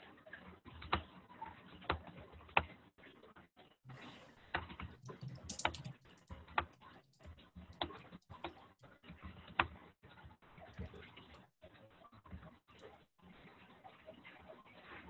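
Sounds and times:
computer keyboard keystrokes: 4.6s - 8.6s.

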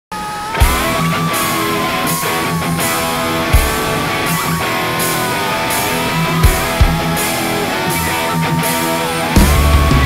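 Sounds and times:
rock music: 0.2s - 10.0s
heavy drum hit: 6.2s - 7.3s.

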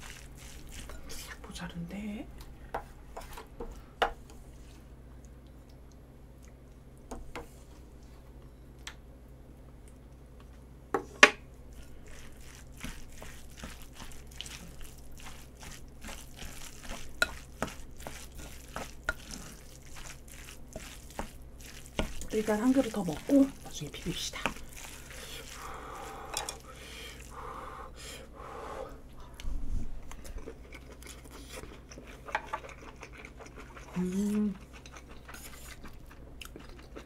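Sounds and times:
liquid sounds: 11.7s - 27.5s.

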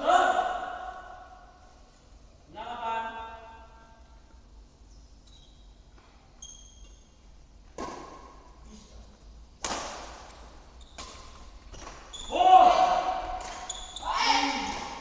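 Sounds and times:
badminton racket hitting shuttlecock: 12.8s - 14.0s.

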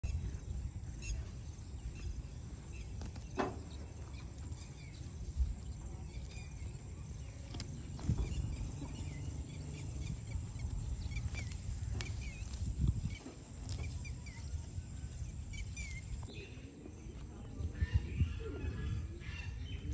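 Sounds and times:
faint bird chirps: 0.0s - 19.9s
low wind rumble: 0.0s - 19.9s
horse tearing and chewing grass: 2.5s - 16.4s.

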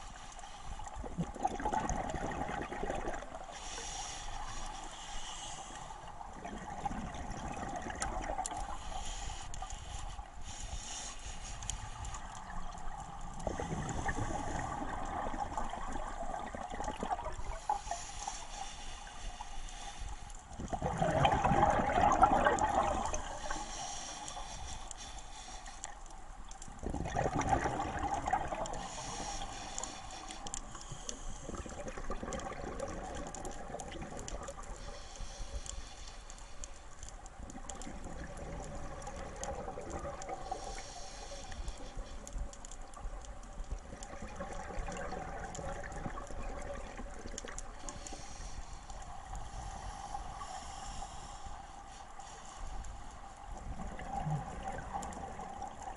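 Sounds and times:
steady underwater hiss: 0.0s - 55.9s
regulator bubbles burbling underwater: 0.9s - 3.6s, 6.1s - 8.8s, 12.2s - 18.1s, 20.5s - 23.9s, 26.6s - 35.0s, 37.4s - 41.9s, 42.9s - 48.3s, 53.4s - 55.9s.

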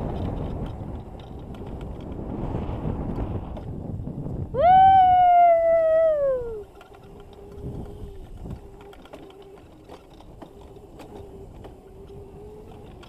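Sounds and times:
chain and frame rattling: 0.0s - 2.2s, 6.6s - 13.0s
low rumble: 1.4s - 6.6s
electric motor whining: 5.9s - 13.0s.

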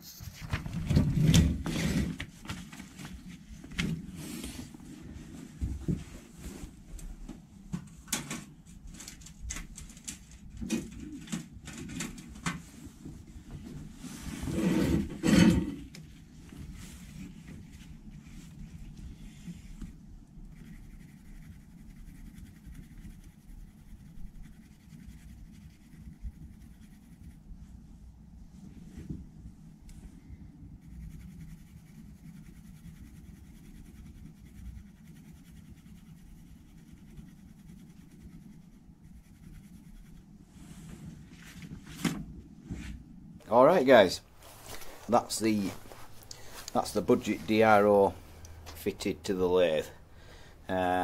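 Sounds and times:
low rubbing rumble: 44.3s - 51.0s.

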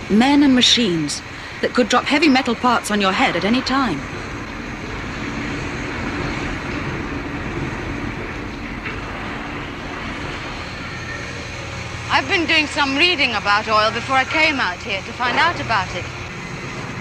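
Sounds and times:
low hum: 0.0s - 17.0s
machinery rumble: 0.0s - 17.0s.

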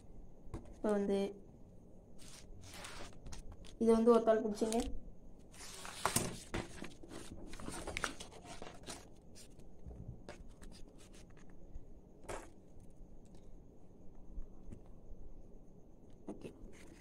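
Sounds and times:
paper and plastic rustling: 2.2s - 3.7s, 5.5s - 9.6s.

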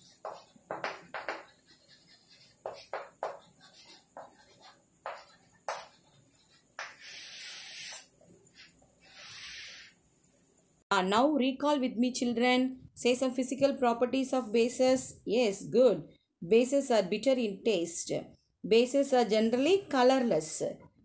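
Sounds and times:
chalk scratching on blackboard: 0.0s - 10.0s.

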